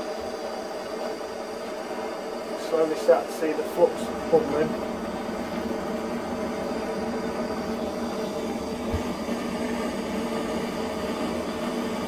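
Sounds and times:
blow lamp flame hissing: 0:00.0 - 0:12.0.

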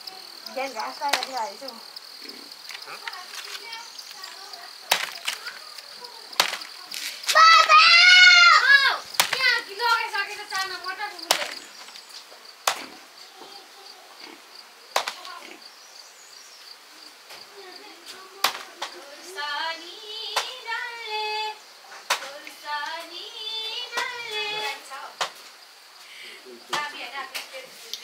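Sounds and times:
high insect buzz: 0:00.0 - 0:28.0
child calling out: 0:07.3 - 0:10.0.

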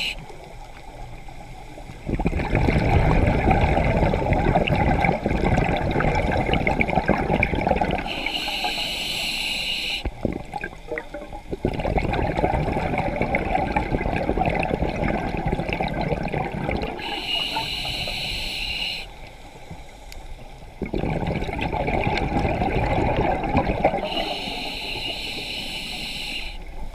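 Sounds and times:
bubbling exhales: 0:02.1 - 0:09.3, 0:10.0 - 0:18.4, 0:20.8 - 0:26.6
hissing inhales: 0:08.1 - 0:10.1, 0:17.0 - 0:20.1, 0:24.0 - 0:26.7.

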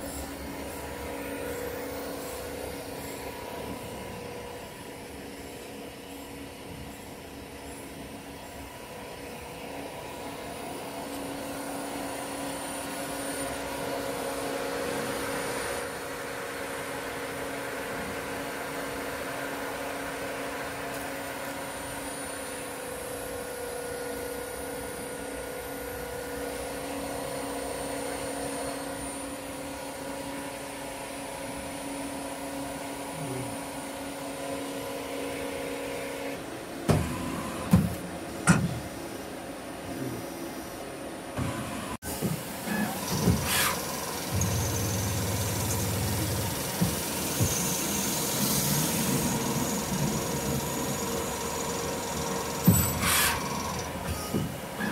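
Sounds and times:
machine hum: 0:41.8 - 0:54.9.

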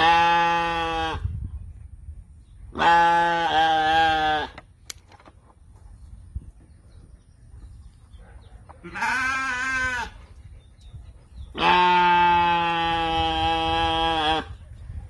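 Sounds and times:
sheep bleating: 0:00.0 - 0:01.2, 0:02.8 - 0:04.6, 0:08.9 - 0:10.1, 0:11.6 - 0:14.5.

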